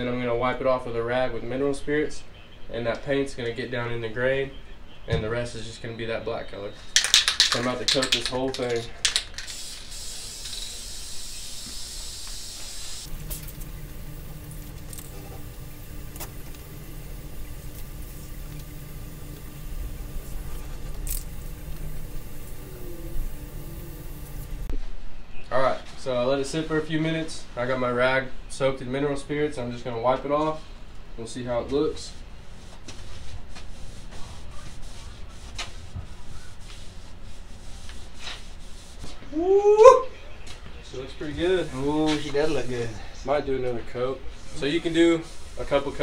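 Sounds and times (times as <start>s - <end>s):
low motor hum: 13.0s - 24.7s.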